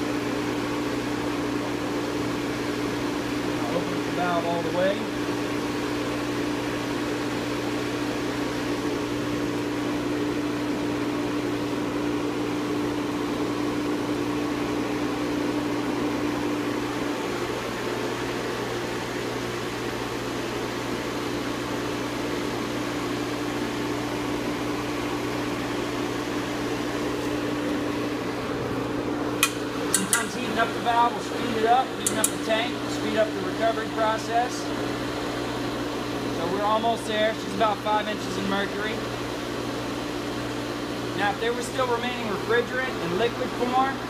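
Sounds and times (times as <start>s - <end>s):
compressor machine humming: 0.0s - 44.0s
sharp clicks: 32.0s - 32.4s.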